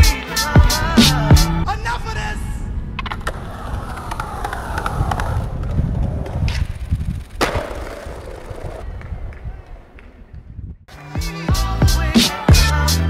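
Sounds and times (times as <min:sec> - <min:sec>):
skateboard wheels rolling on pavement: 0:02.9 - 0:10.5
skateboard clacks: 0:03.0 - 0:10.2
skateboard impact: 0:03.0 - 0:10.2.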